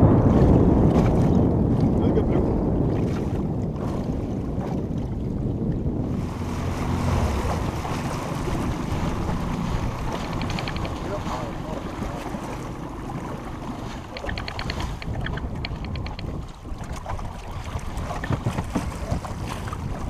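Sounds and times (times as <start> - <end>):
water slapping against boat hull: 0.0 - 20.0
wind buffeting microphone: 0.0 - 20.0
rapid clicking: 10.1 - 11.0, 14.1 - 16.3.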